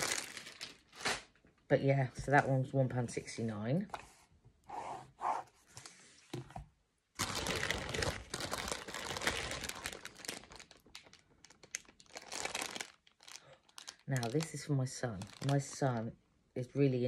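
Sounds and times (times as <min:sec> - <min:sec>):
plastic bag crinkling: 0:00.0 - 0:01.4, 0:07.2 - 0:16.1.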